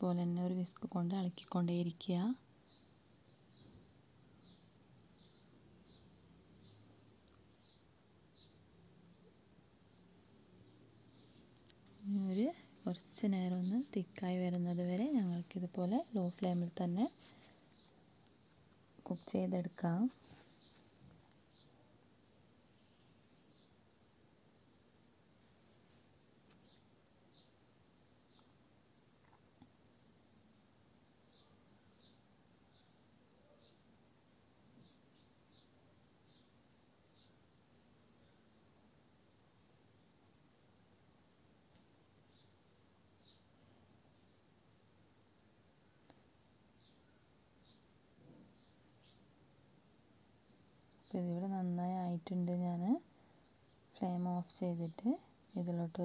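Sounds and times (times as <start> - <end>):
faint room hiss: 0.0 - 56.0
small bird chirping: 0.0 - 56.0
small high chirps: 25.0 - 30.0.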